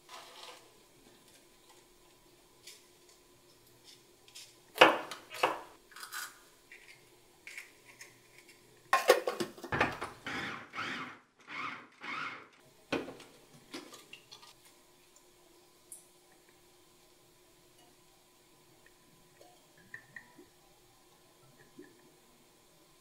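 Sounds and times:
food chopper rasping: 0:10.2 - 0:12.6.

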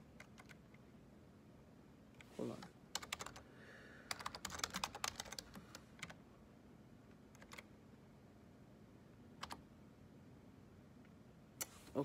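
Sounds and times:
typing on a computer keyboard: 0:00.2 - 0:00.8, 0:02.9 - 0:03.4, 0:04.1 - 0:06.2, 0:07.3 - 0:07.7, 0:09.4 - 0:09.6.

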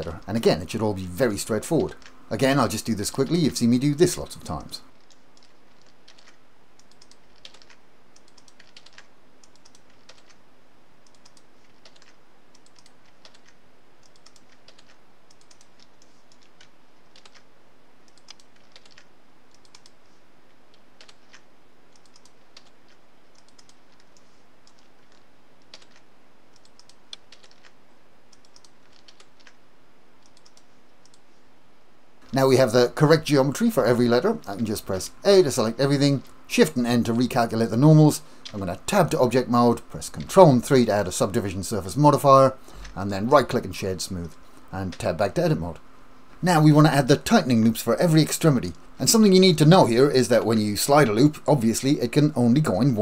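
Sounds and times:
faint steady hum: 0:00.0 - 0:53.0
keyboard and mouse clicking: 0:05.0 - 0:10.4, 0:11.0 - 0:20.0, 0:20.7 - 0:29.6, 0:30.2 - 0:31.2.

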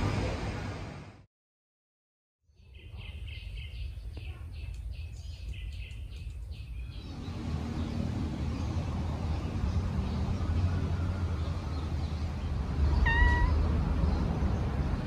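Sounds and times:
cat meowing: 0:12.9 - 0:13.7.

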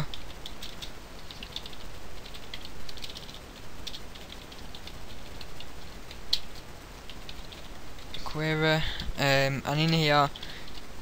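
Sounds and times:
keyboard typing: 0:00.0 - 0:08.3.

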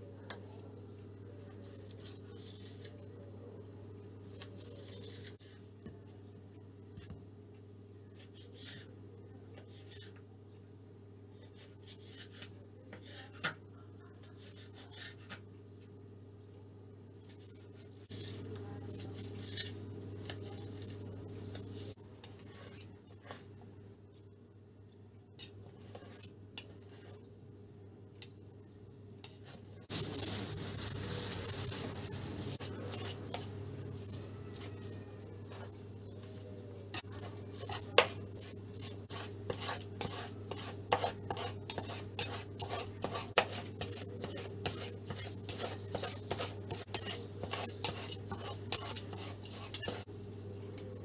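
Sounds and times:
steady low hum: 0:00.0 - 0:51.0
knife slicing meat: 0:37.0 - 0:50.0.

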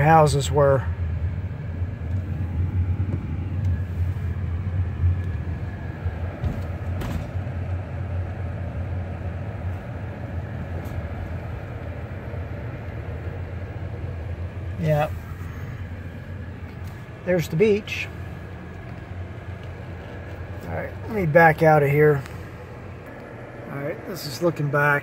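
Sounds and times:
car engine rumble: 0:00.0 - 0:25.0
road noise inside car: 0:00.0 - 0:25.0.

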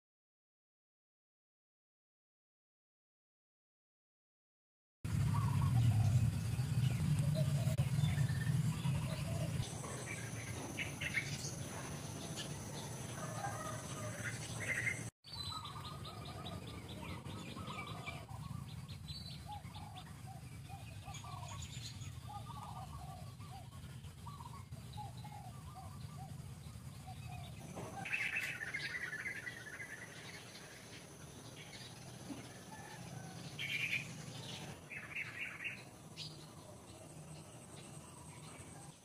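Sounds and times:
low rumble: 0:05.1 - 0:13.2
birds chirping and calling: 0:05.1 - 0:39.0.

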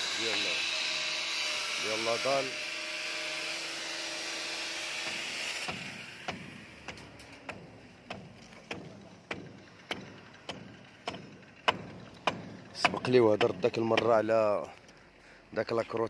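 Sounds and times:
footsteps on steel mesh: 0:06.8 - 0:13.1.

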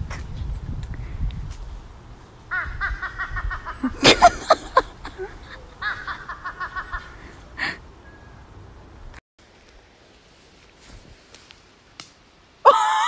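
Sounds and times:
crow laugh-like calls: 0:02.5 - 0:07.4.

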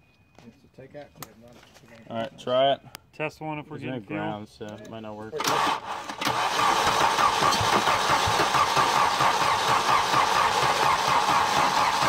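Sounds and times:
starter motor cranking engine: 0:05.4 - 0:12.0.

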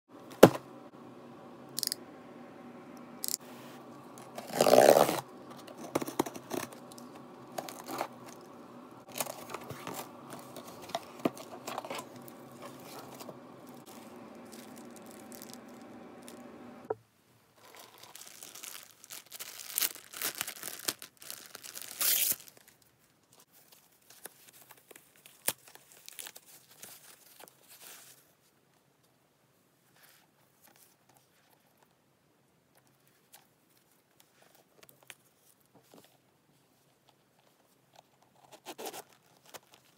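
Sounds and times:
faint steady hum: 0:00.1 - 0:17.6
plastic wrapping crinkling: 0:03.2 - 0:16.6, 0:17.6 - 0:22.8
box and plastic bag rustling: 0:03.2 - 0:17.0, 0:17.6 - 0:22.7
packing tape ripping: 0:04.2 - 0:08.5, 0:09.1 - 0:16.4, 0:17.6 - 0:22.6.

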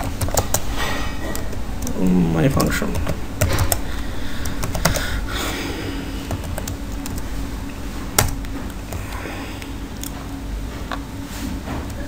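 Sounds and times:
keyboard keystrokes clicking: 0:00.0 - 0:00.7, 0:01.3 - 0:03.8, 0:04.4 - 0:05.1
steady low hum: 0:00.0 - 0:12.0.

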